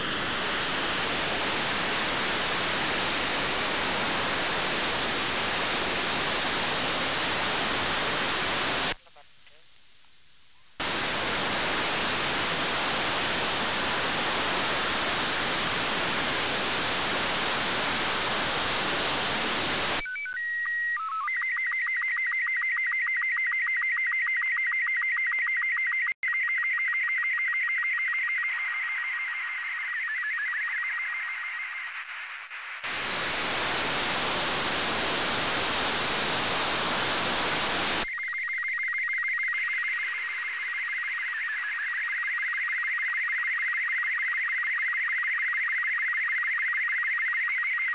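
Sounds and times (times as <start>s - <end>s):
receiver static: 0.0s - 20.4s, 27.8s - 47.9s
warbling scan-line tones: 26.3s - 47.9s.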